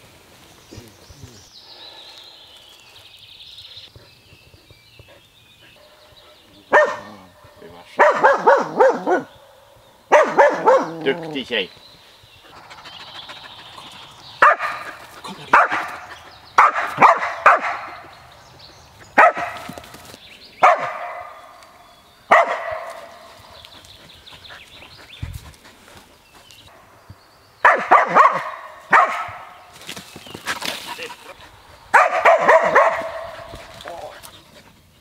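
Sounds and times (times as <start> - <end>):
dog barking: 6.7 - 7.3, 7.9 - 9.3, 10.1 - 11.1, 14.4 - 14.9, 15.5 - 18.0, 19.2 - 19.7, 20.6 - 21.4, 22.3 - 23.0, 27.6 - 29.5, 31.9 - 33.6.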